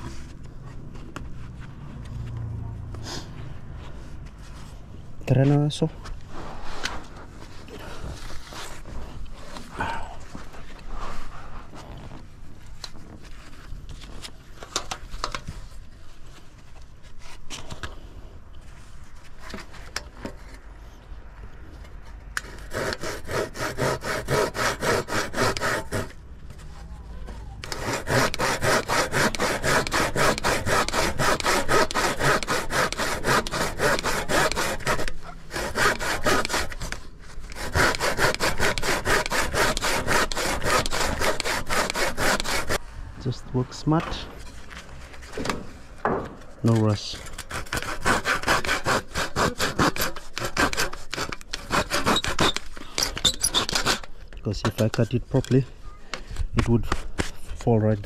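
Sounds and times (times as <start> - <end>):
handsaw cutting wood: 22.4 - 26.2, 27.6 - 42.8, 46.7 - 54.1.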